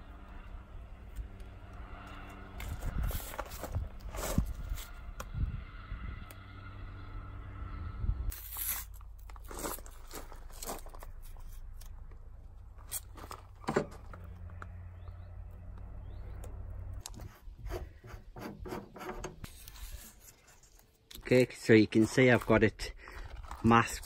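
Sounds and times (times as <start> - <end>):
low steady rumble: 0.0 - 20.0
tape rubbing on metal panel: 17.0 - 20.8.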